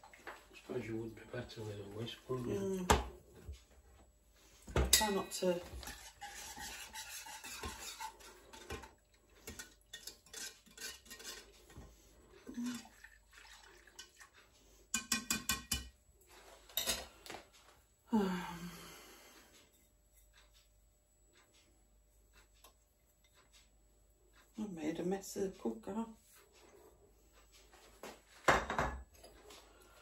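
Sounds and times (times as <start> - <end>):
whisk scraping and clinking in saucepan: 4.9 - 11.9, 13.6 - 14.3, 14.9 - 15.9.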